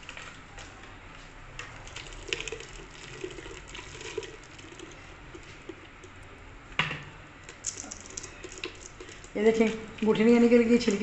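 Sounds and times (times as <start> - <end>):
juice pouring through strainer: 1.6 - 6.5, 7.4 - 9.4.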